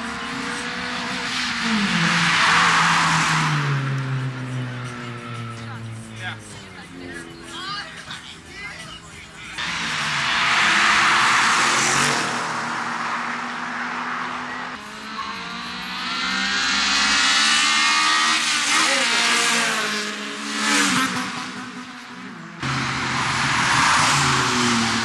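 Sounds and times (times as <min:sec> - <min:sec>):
cars accelerating with revving engines: 0:00.0 - 0:25.0.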